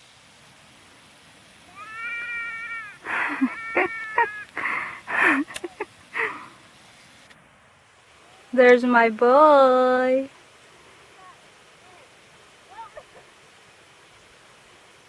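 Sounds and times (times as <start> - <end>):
child squealing: 1.7 - 4.6.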